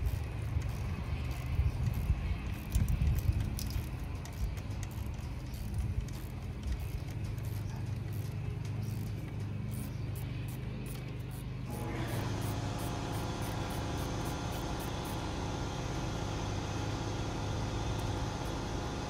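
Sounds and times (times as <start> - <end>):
faint evenly spaced clicking: 0.0 - 11.4
low engine-like hum: 0.0 - 19.0.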